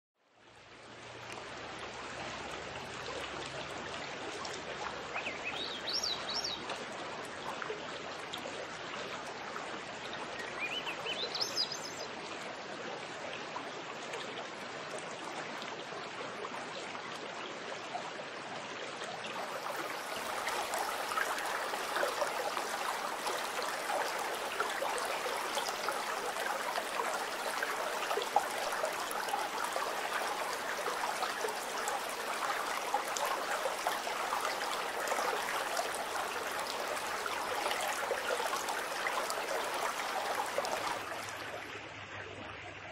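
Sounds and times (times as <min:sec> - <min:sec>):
creek water rushing over rocks: 0:00.4 - 0:42.3.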